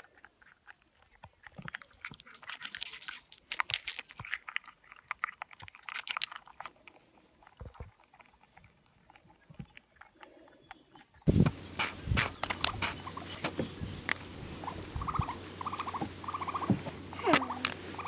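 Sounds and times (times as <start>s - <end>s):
squirrel crunching a nut: 0.0s - 18.0s.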